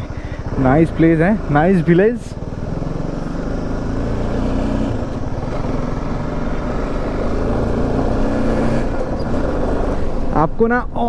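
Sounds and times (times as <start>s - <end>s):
motorcycle engine running: 0.0s - 11.0s
tyres on gravel road: 0.0s - 11.0s.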